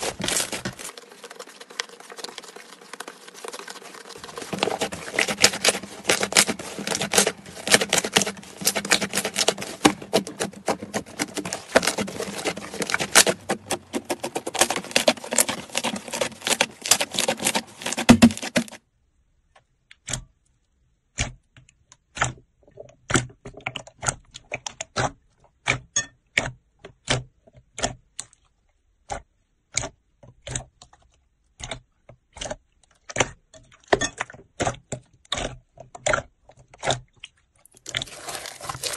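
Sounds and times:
sticky slime crackling: 0.0 - 18.8, 37.7 - 38.9
fingers pressing slime clicks: 29.0 - 32.6.

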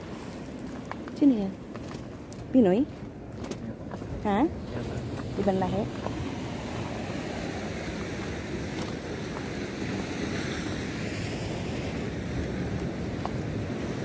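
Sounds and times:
wind buffeting microphone: 0.8 - 14.0
surf washing on rocky shore: 3.8 - 14.0.

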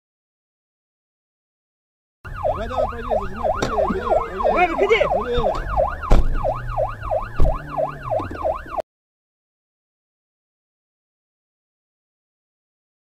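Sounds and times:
police siren yelping: 2.3 - 8.8
sharp knocks: 3.5 - 4.1, 5.4 - 6.6.

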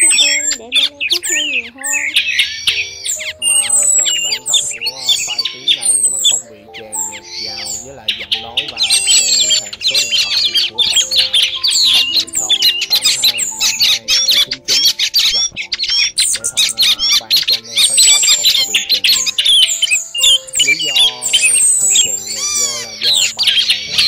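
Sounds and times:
background music with held notes: 0.0 - 24.0
thrushes chirping and whistling: 0.0 - 24.0.

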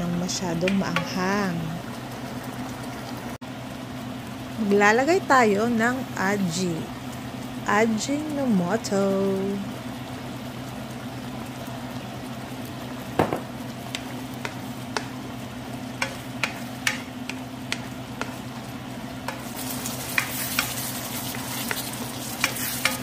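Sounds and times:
food bubbling and sizzling in a pan: 0.0 - 23.0
steady low hum: 0.0 - 23.0
spatula clicking and tapping: 0.6 - 1.2, 13.2 - 18.6, 19.2 - 23.0.

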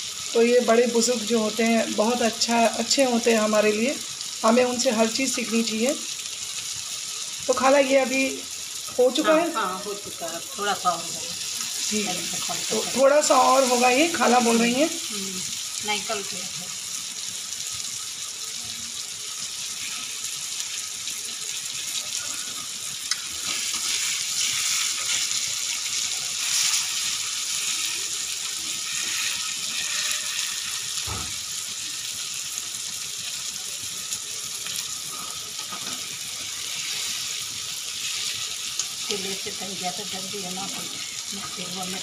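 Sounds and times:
chillies sizzling in hot oil: 0.0 - 42.0
spatula stirring: 23.4 - 30.8.

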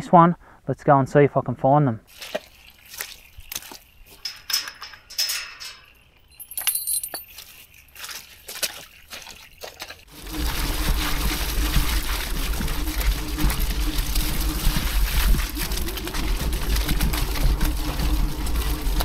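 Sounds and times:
gate chain latch clanking: 4.2 - 7.2
electric bike rumbling and humming: 10.1 - 19.0.

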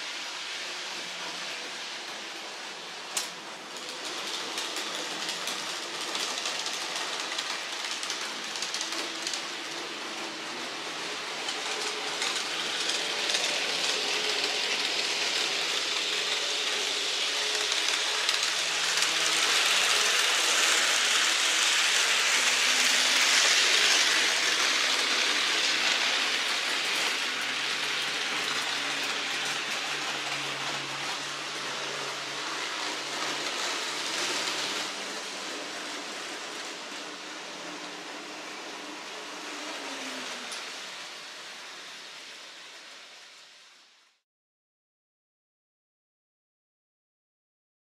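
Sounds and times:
model train rushing hiss: 0.0 - 36.7.

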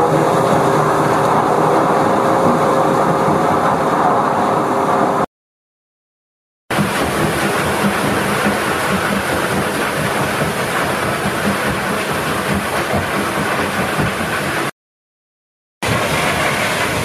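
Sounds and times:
machinery rumble: 0.0 - 5.3, 6.7 - 14.7, 15.8 - 17.0
sand and water pouring and splashing: 15.8 - 17.0.

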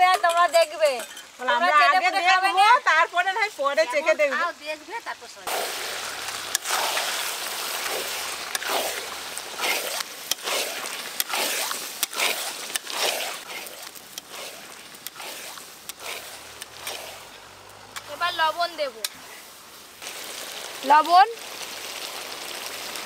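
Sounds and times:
spatula scraping in metal wok: 5.5 - 19.6
metal clicking against pan: 10.0 - 10.5, 11.1 - 11.4, 12.0 - 12.9, 13.9 - 14.3, 15.0 - 15.2, 15.8 - 16.9.

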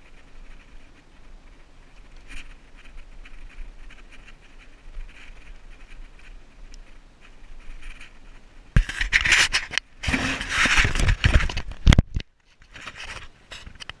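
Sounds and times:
phone scraping against sandstone: 8.8 - 11.5.

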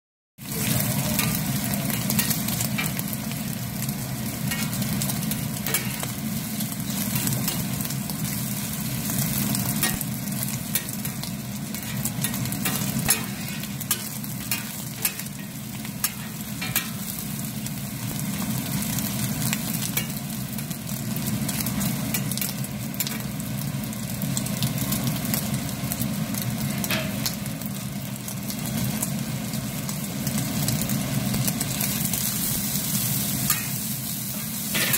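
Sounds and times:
food sizzling on a griddle: 0.4 - 34.9
metal spatula scraping a griddle: 0.6 - 3.2, 4.4 - 7.9, 10.7 - 17.1, 33.0 - 34.9.

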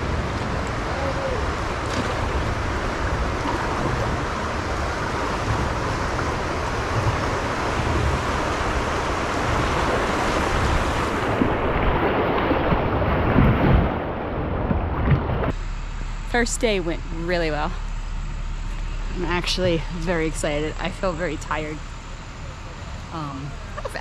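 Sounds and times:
river water rushing: 0.0 - 15.5
wind buffeting microphone: 0.0 - 15.5.

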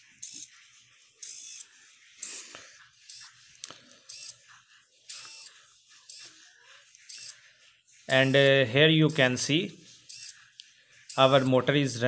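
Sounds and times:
servo motor gear buzz: 5.1 - 6.4, 7.1 - 7.4, 10.1 - 10.4.

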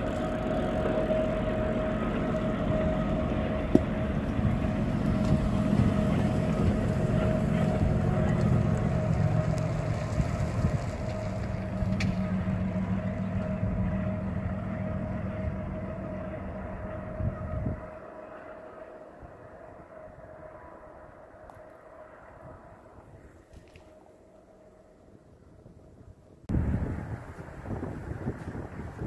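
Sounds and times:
low engine rumble: 0.0 - 29.0.

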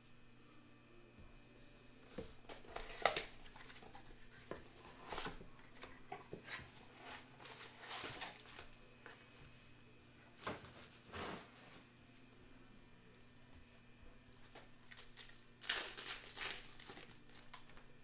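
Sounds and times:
card wrappers rustling and crinkling: 2.6 - 8.8, 14.3 - 18.0.

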